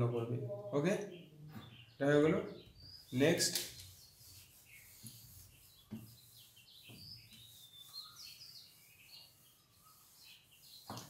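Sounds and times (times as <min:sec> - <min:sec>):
faint bird chirps: 0:00.3 - 0:11.0
cloth rubbing on whiteboard: 0:03.0 - 0:11.0.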